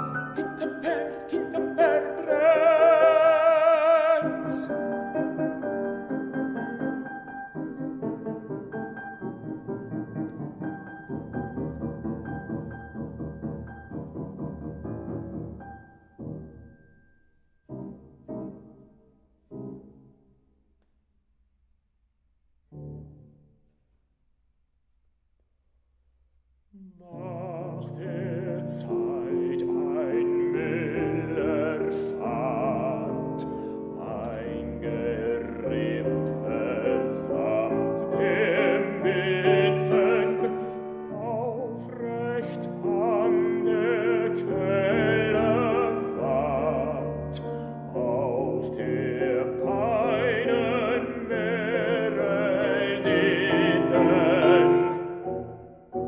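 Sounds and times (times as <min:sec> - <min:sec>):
man singing operatically: 0:00.0 - 0:05.6, 0:26.8 - 0:55.3
grand piano: 0:00.0 - 0:56.0.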